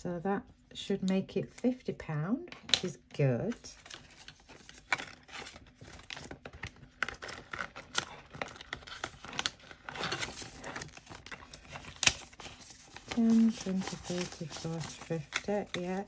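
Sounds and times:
banknotes crinkling: 3.5 - 16.0
plastic pocket rustling: 3.5 - 16.0.

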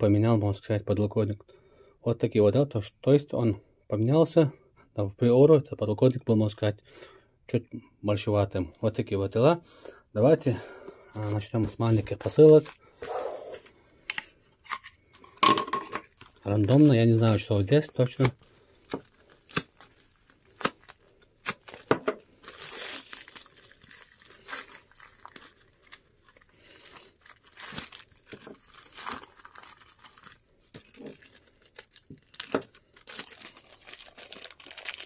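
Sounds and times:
plastic packaging tearing and crinkling: 16.0 - 35.0.

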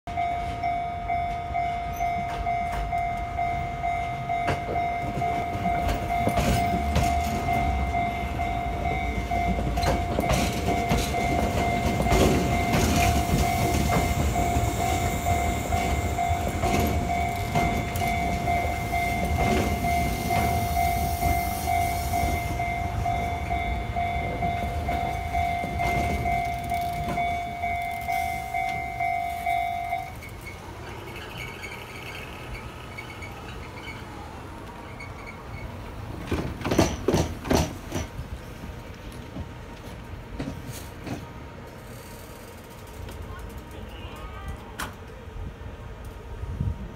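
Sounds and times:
level crossing alarm ringing: 0.1 - 30.6
train rumble: 0.1 - 46.9
train wheels clacking: 1.8 - 34.0, 34.8 - 38.4.

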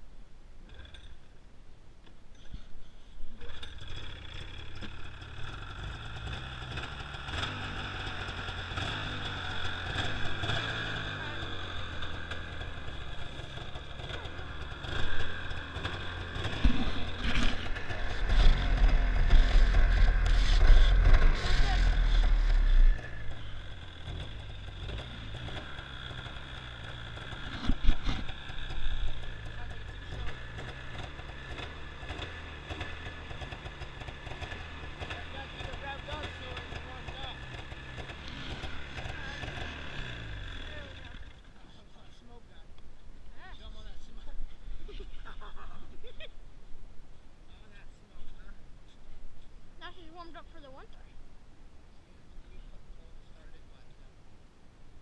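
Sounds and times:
snowmobile engine running: 3.4 - 41.3.

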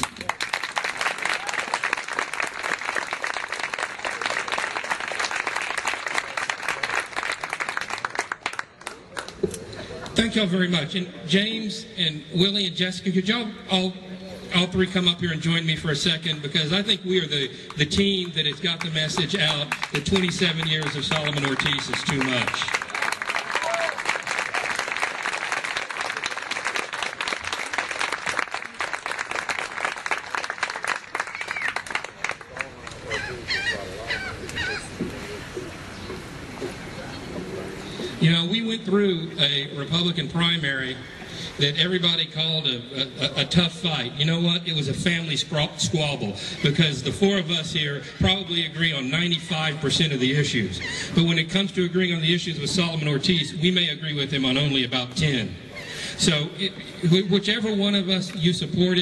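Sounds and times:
crowd applauding: 0.0 - 9.5, 17.7 - 33.3.

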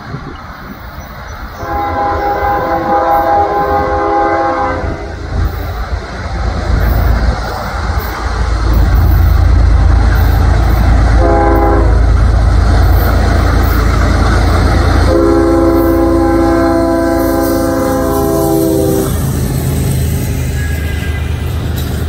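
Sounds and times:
diesel locomotive rumbling: 0.0 - 22.0
locomotive air horn: 1.6 - 5.1, 11.1 - 12.1, 14.9 - 19.3, 20.5 - 21.6.

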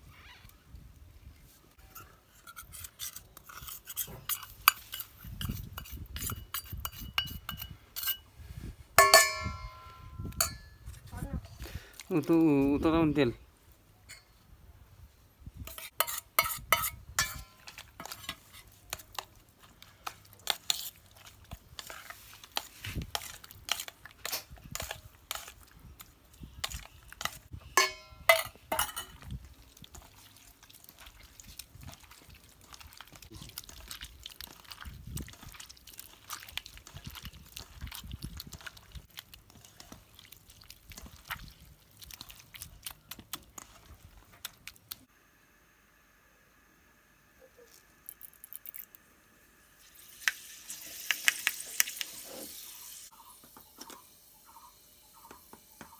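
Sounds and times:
steel bowls knocking and ringing: 9.0 - 10.8, 27.8 - 29.1
hand mixing yogurt squelching: 17.6 - 27.6, 29.1 - 45.1.

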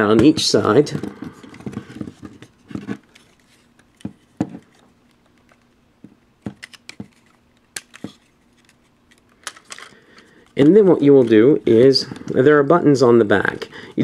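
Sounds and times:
plastic figure parts clicking: 6.5 - 11.4.

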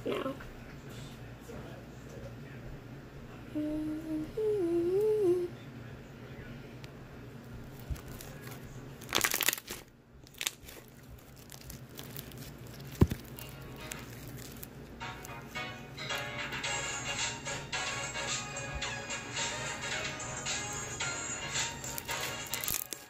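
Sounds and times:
person humming: 3.5 - 5.6
slime squelching and crackling: 7.7 - 15.5, 21.6 - 23.0.

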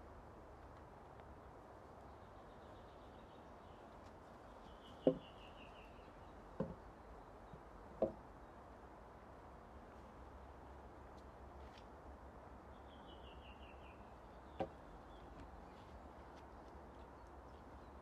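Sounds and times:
bird singing: 4.5 - 7.7, 12.7 - 18.0.

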